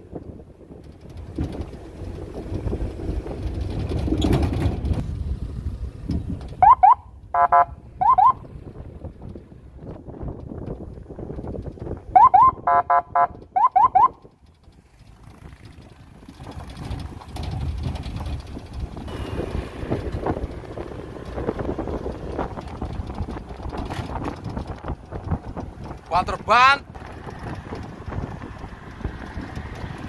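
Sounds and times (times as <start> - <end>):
truck diesel engine rumbling: 0.0 - 30.0
rising electronic chirps: 6.6 - 8.4.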